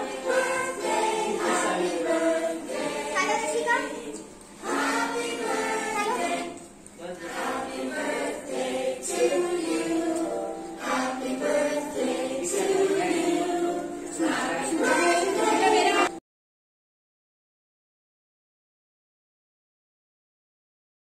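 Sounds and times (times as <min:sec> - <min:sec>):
group of voices singing: 0:00.0 - 0:16.2
music: 0:00.0 - 0:16.2.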